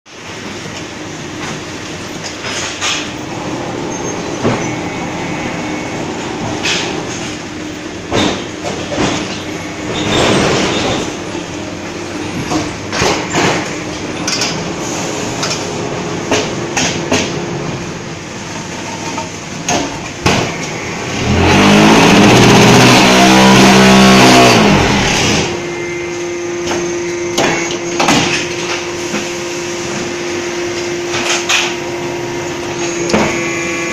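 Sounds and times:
machine hum: 0.2s - 33.9s
loud vibrating roar: 3.2s - 7.7s, 20.6s - 26.0s.

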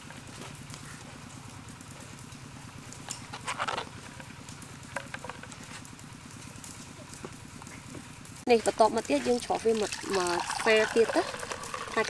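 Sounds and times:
juice trickling into bowl: 9.3s - 12.0s.

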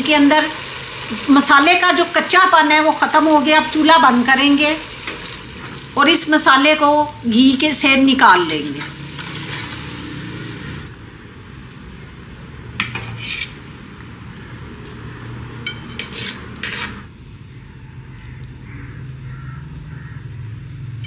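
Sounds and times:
hot oil sizzling: 0.0s - 17.1s
wire skimmer scraping metal pot: 12.8s - 13.6s, 15.7s - 17.1s.

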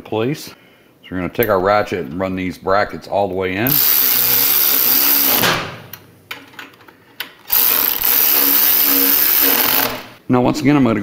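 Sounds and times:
electric ratchet spinning bolts: 3.7s - 5.5s, 7.5s - 10.2s.

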